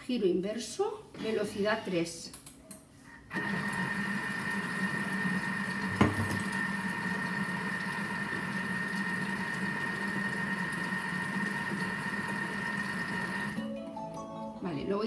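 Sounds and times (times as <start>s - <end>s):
food processor motor whining: 3.3s - 13.6s
knock: 6.0s - 6.4s.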